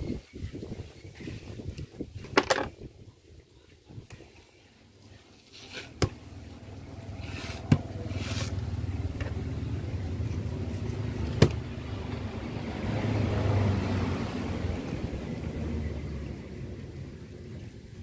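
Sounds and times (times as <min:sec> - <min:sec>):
vehicle engine rumble: 0:04.9 - 0:18.0
knife scraping while filleting: 0:07.2 - 0:08.6.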